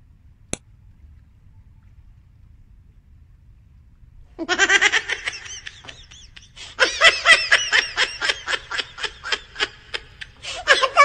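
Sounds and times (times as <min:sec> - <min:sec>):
person laughing: 0:04.4 - 0:11.0.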